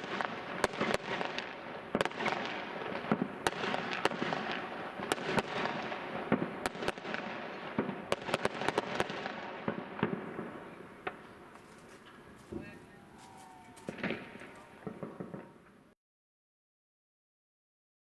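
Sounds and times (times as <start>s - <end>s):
fireworks bangs and cracks: 0.0s - 12.8s, 13.4s - 15.8s
overlapping firework bursts: 0.0s - 15.9s.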